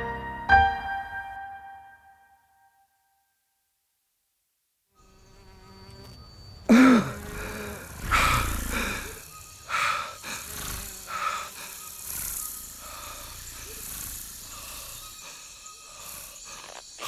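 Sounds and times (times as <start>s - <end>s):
faint forest ambience: 2.5s - 17.0s
insects buzzing: 5.0s - 17.0s.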